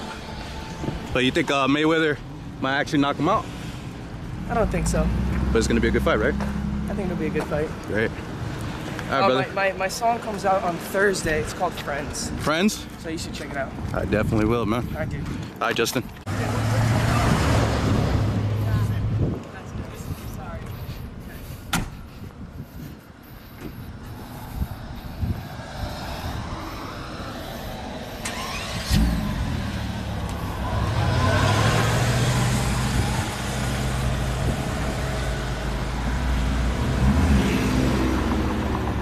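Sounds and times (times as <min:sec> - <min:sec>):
car engine starting and revving: 0:16.3 - 0:18.8, 0:27.8 - 0:39.0.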